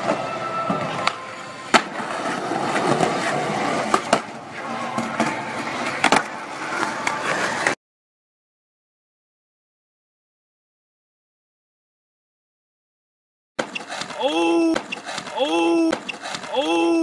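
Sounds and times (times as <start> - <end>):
skateboard clacking on ground: 0.0 - 7.8
skateboard wheels rolling on concrete: 0.0 - 7.8.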